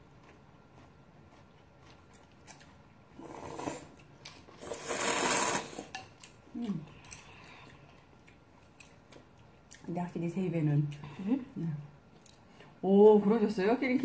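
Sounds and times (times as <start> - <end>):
chopstick and chewing clicks: 0.2 - 2.8, 5.9 - 9.9
noodles slurped: 3.2 - 6.0.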